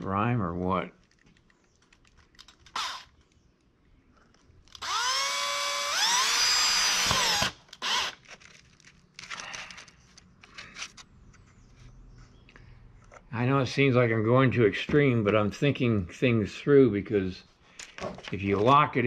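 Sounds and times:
power drill drilling wood: 2.8s - 3.0s, 4.8s - 8.2s.

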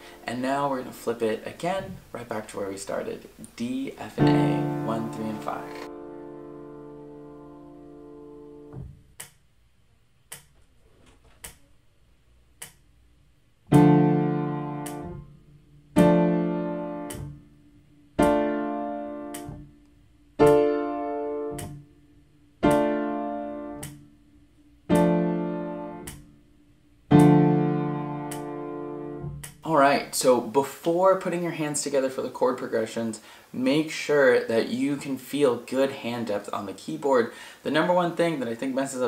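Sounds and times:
piano chords ringing: 0.0s - 1.0s, 4.1s - 9.0s, 13.7s - 19.8s, 20.4s - 29.9s
metronome clicks: 14.6s - 15.2s, 17.0s - 17.4s, 19.2s - 20.7s, 21.4s - 21.8s, 23.7s - 24.1s, 24.9s - 26.3s, 27.1s - 28.7s.

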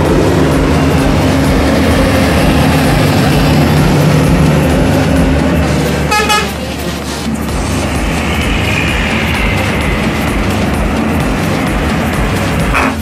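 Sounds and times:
truck diesel engine passing: 0.0s - 13.0s
vehicle horn: 6.0s - 7.0s, 12.7s - 13.0s.

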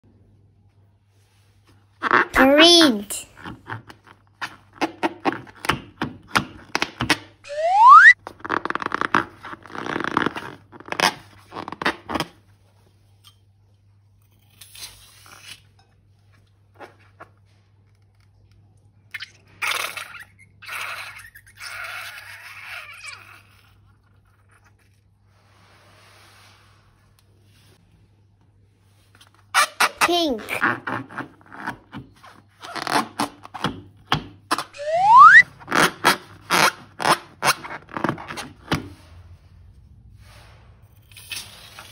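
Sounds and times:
rising squeak: 7.5s - 8.2s, 34.8s - 35.4s.

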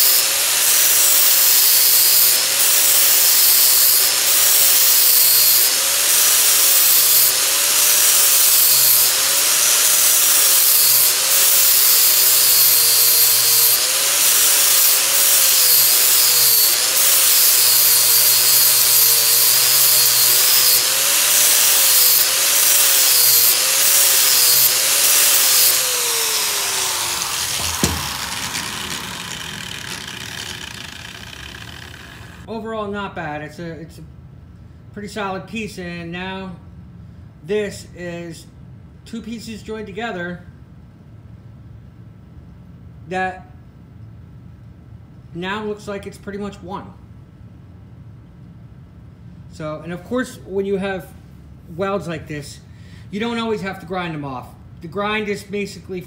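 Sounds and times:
angle grinder grinding steel: 0.0s - 32.5s
knock: 27.7s - 28.1s.

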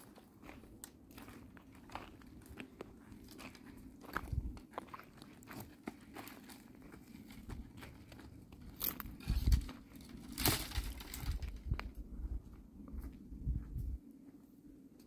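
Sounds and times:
dry twigs and leaves crunching: 0.8s - 12.0s.

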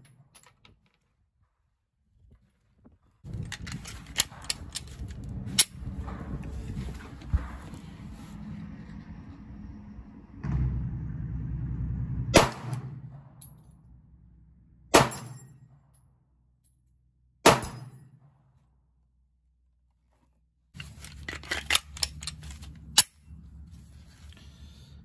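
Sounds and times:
pistol shots: 12.4s - 12.9s, 14.9s - 15.4s, 17.4s - 18.0s.

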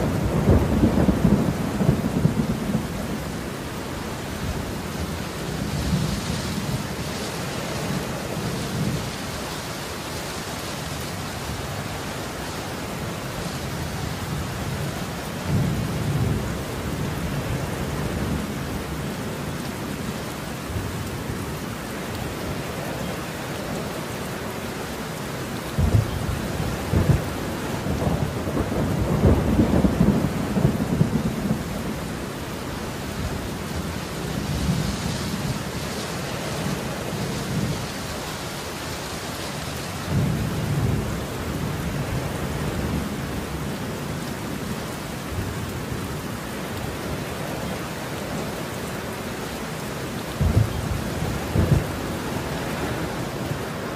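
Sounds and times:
rolling thunder: 0.0s - 3.2s, 25.7s - 32.0s, 50.3s - 53.9s
heavy rain: 0.0s - 53.9s.

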